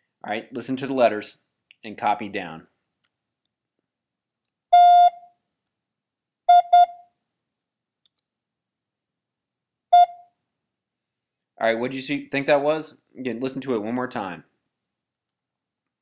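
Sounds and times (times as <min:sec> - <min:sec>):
morse code beeps: 0:04.8 - 0:05.2, 0:06.5 - 0:07.0, 0:10.0 - 0:10.2.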